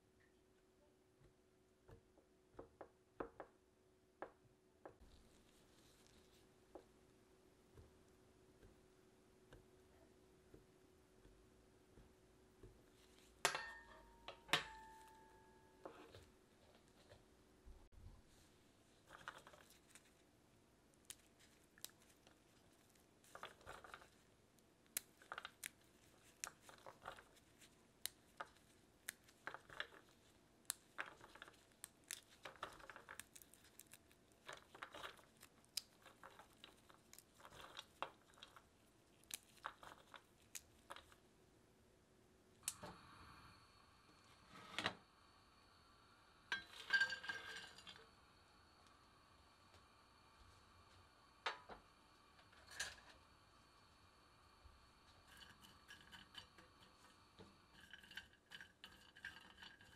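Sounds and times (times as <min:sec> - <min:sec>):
walnuts crackling and snapping: 0:20.9 - 0:41.3
nut pieces rustling on tray: 0:25.0 - 0:41.2.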